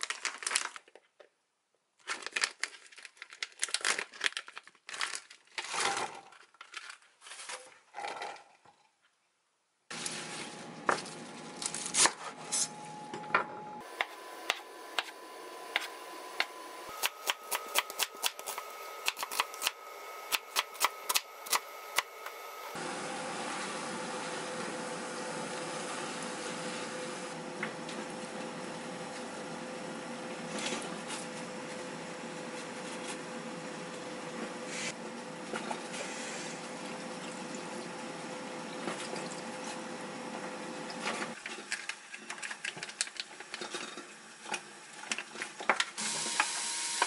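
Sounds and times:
crinkling and rustling handling: 0.0s - 8.3s
knife chopping on wooden board: 14.0s - 15.1s, 15.7s - 22.1s.

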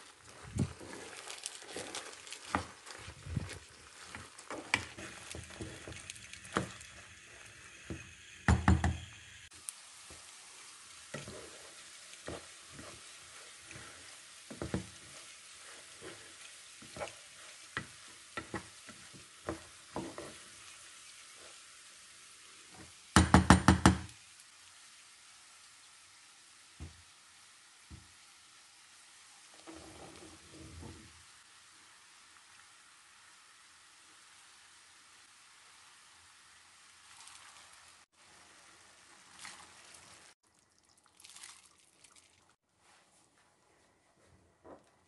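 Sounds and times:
rice grains scraping in pot: 0.1s - 6.6s, 11.1s - 21.6s
wooden spoon knocking on pot: 8.5s - 9.0s, 23.2s - 24.1s.

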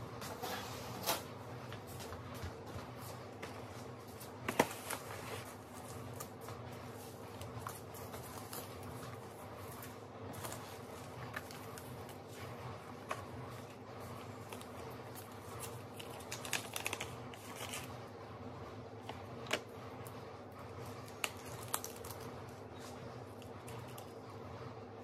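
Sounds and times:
paper seed packets rustling: 4.1s - 18.0s.

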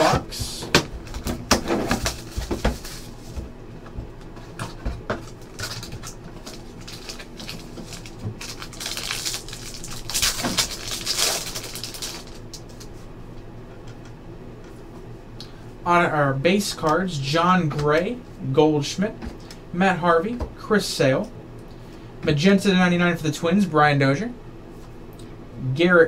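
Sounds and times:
foil wrapper crinkling and tearing: 5.2s - 12.9s.

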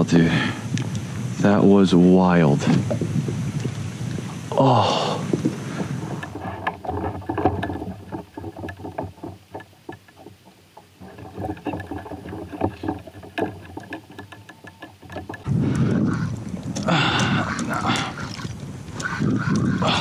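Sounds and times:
water lapping against kayak: 2.2s - 20.0s
small knocks on hull: 5.3s - 19.8s.

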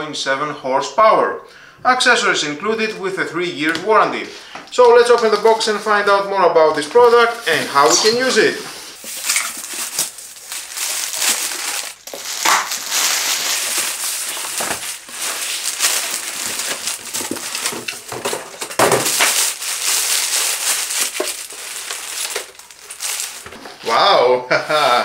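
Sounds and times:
plastic bag crinkling: 4.7s - 23.9s
cardboard scraping: 6.8s - 23.9s.

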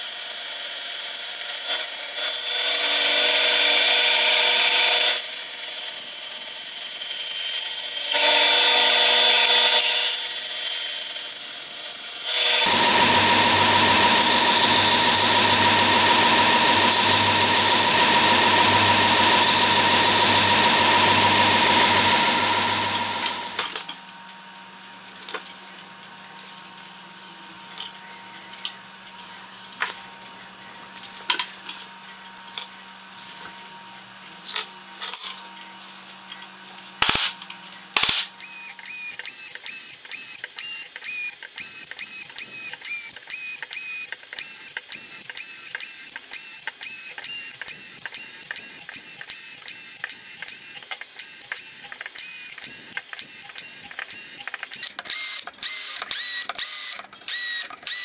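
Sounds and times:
drill press whirring: 0.2s - 23.8s, 38.4s - 58.0s
belt sander grinding metal: 0.4s - 23.8s, 38.4s - 49.4s.

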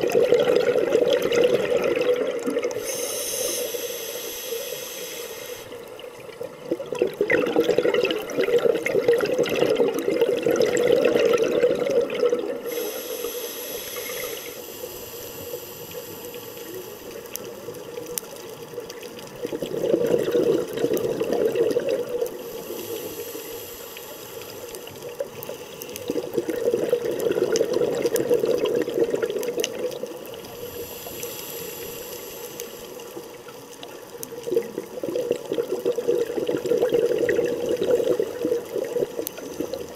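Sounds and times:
exhaled bubbles underwater: 0.0s - 14.8s, 15.4s - 39.9s
regulator hiss: 2.7s - 6.0s, 12.6s - 17.7s, 22.3s - 26.3s, 30.3s - 33.5s.

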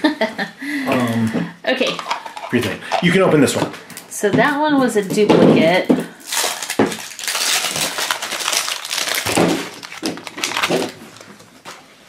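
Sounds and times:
plastic wrapper crinkling: 6.2s - 11.9s.

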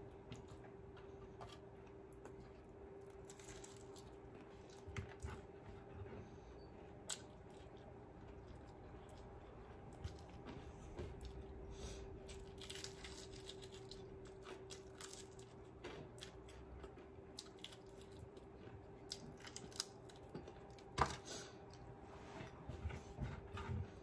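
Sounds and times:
fried chicken crunching: 1.4s - 4.9s, 12.2s - 20.9s
wet chewing: 6.8s - 11.5s, 12.2s - 20.9s.

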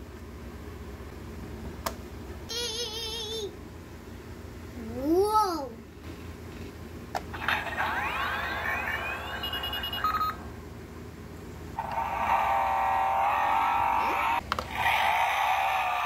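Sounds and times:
toy electronic sound effects: 7.4s - 10.4s
toy beeps: 8.5s - 10.4s.

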